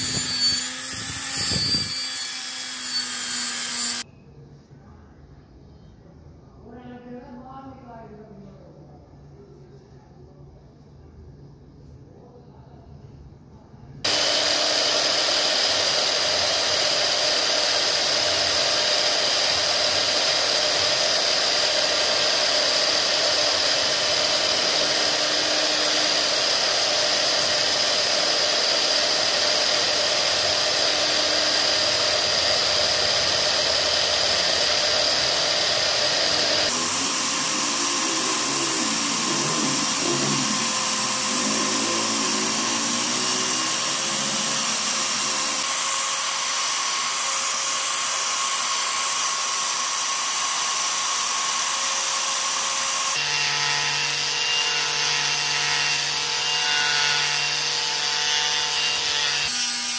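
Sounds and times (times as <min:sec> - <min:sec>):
belt sander grinding metal: 0:00.0 - 0:04.0, 0:14.1 - 0:59.9.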